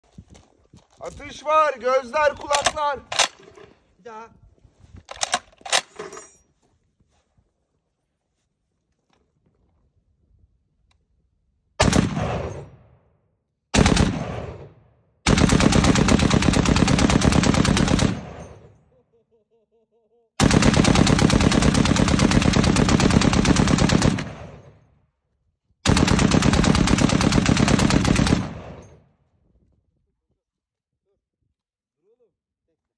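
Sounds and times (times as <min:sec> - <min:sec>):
heavy machine gun firing bursts: 0:11.8 - 0:12.5, 0:13.8 - 0:14.6, 0:15.3 - 0:18.6, 0:20.4 - 0:24.7, 0:25.8 - 0:28.8
gunfire echo: 0:11.8 - 0:13.1, 0:13.8 - 0:16.3, 0:17.4 - 0:18.8.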